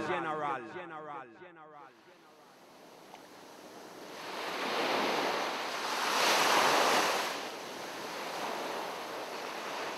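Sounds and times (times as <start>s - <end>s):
ocean waves washing onto shore: 2.6s - 9.9s.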